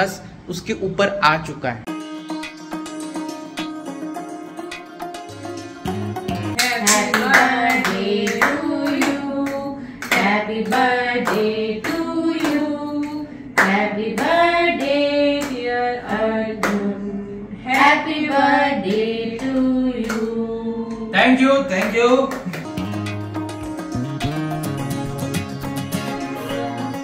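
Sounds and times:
hand-clapping in time: 6.4 - 15.7, 16.6 - 16.9, 17.7 - 20.3, 21.8 - 27.0
people singing together: 6.5 - 21.4.

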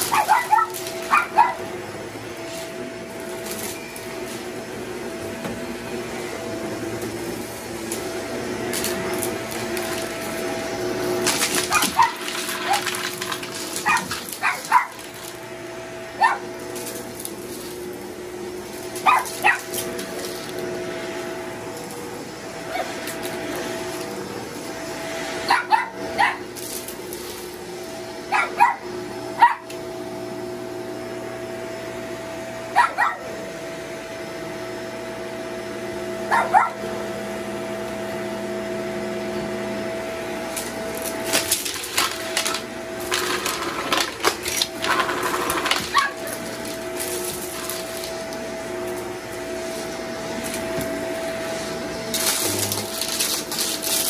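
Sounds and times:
dog yelping: 0.0 - 1.7, 11.6 - 12.9, 13.8 - 15.0, 16.2 - 16.5, 19.0 - 19.8, 22.6 - 23.0, 25.4 - 26.5, 28.3 - 29.7, 32.7 - 33.3, 36.3 - 36.8, 45.8 - 46.4
vacuum cleaner running: 0.0 - 54.0
debris crackling in vacuum: 7.2 - 15.7, 16.5 - 22.3, 40.4 - 54.0.

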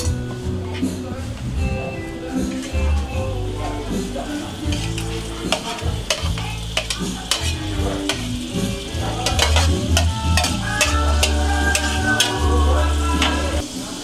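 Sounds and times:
vegetables sizzling in hot oil: 3.4 - 14.0
spatula clinking on plate and wok: 4.4 - 13.5.

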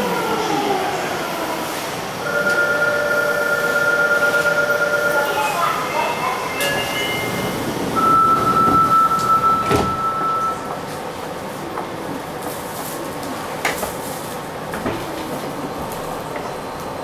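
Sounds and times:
subway car running noise: 0.0 - 17.0
high warning tone: 2.2 - 10.8
sliding doors shutting: 6.6 - 10.8.

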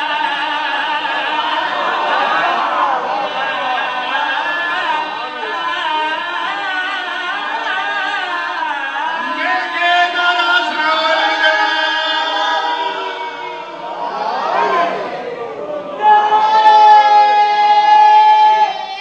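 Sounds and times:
men singing without instruments: 0.0 - 13.2.

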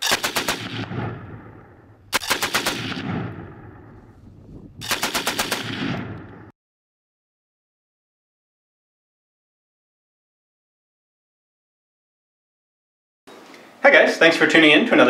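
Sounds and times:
machine gun bursts: 0.0 - 0.7, 2.1 - 3.0, 4.8 - 5.8
gunfire echo: 0.0 - 4.2, 4.8 - 6.5.

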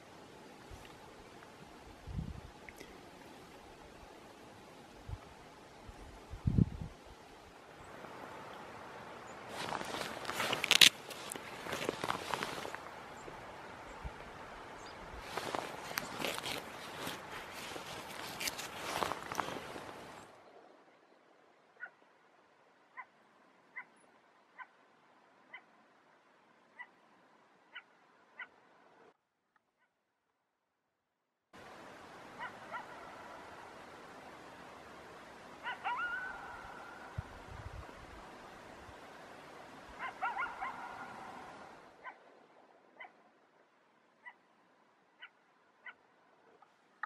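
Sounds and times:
wild canid yipping: 21.8 - 22.0, 22.9 - 24.0, 25.5 - 25.7, 32.4 - 33.5, 35.6 - 37.3, 40.0 - 42.3, 43.0 - 43.2, 44.2 - 44.5, 45.2 - 46.0
wolf barking faintly: 32.4 - 33.6, 35.6 - 37.2, 40.0 - 42.3
short dog-like barks: 40.0 - 42.2.

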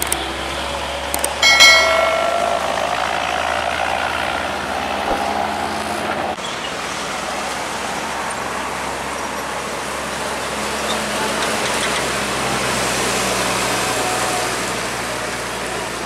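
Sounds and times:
diesel trucks passing: 0.0 - 16.0
road traffic noise: 0.0 - 16.0.

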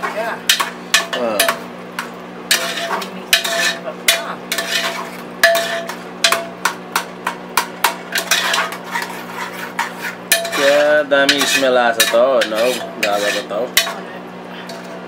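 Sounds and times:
steady low hum: 0.0 - 15.0
spoon scraping metal pot: 2.5 - 6.4, 8.1 - 15.0.

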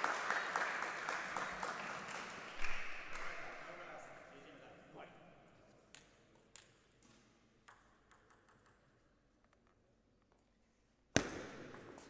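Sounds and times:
table tennis ball bouncing: 7.6 - 9.1, 11.2 - 12.0.

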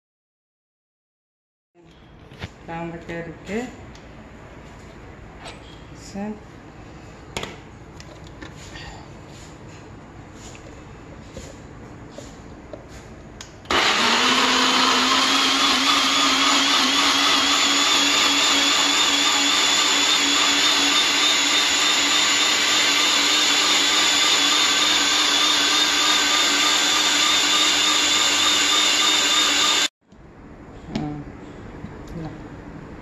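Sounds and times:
blender motor grinding: 13.7 - 29.9.

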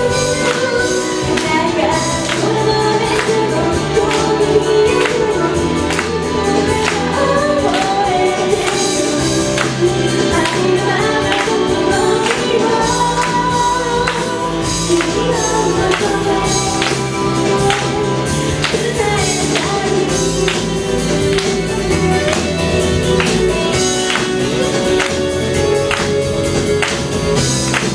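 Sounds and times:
woman singing into a microphone: 0.0 - 21.4
backing track with steady beat: 0.0 - 27.9
audience clapping along: 0.4 - 27.9.

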